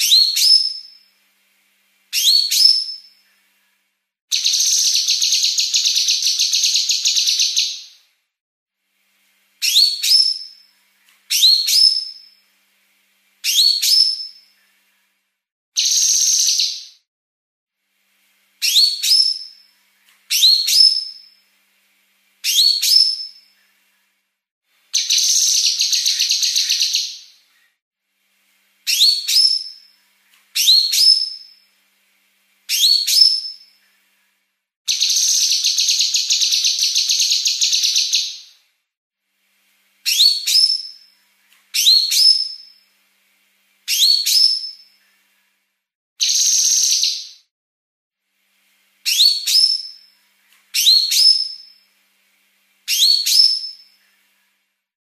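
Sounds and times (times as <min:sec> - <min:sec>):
rising whistled bird notes: 0:00.0 - 0:01.0, 0:02.2 - 0:03.2, 0:04.3 - 0:08.0, 0:09.6 - 0:10.6, 0:11.3 - 0:12.4, 0:13.5 - 0:14.6, 0:15.8 - 0:17.1, 0:18.6 - 0:19.6, 0:20.3 - 0:21.4, 0:22.5 - 0:23.5, 0:28.9 - 0:29.9, 0:30.6 - 0:31.6, 0:32.7 - 0:33.8, 0:40.1 - 0:41.1, 0:41.8 - 0:42.8, 0:43.9 - 0:45.0, 0:46.2 - 0:47.5, 0:49.1 - 0:50.2, 0:50.8 - 0:51.8, 0:52.9 - 0:54.0
buzzy bird trill: 0:04.3 - 0:07.9.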